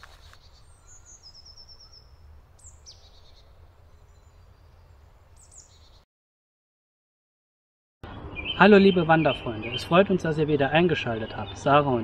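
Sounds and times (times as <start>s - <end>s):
songbirds calling: 0.0s - 6.0s, 8.0s - 12.0s.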